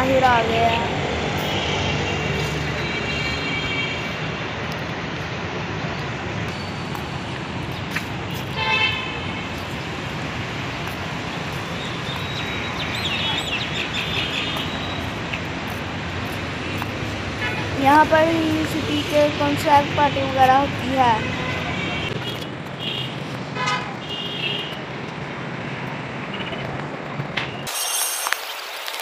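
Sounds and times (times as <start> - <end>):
road traffic noise: 0.0 - 29.0
vehicle horns honking: 1.4 - 4.3, 8.4 - 9.5, 17.4 - 17.8, 21.1 - 24.8.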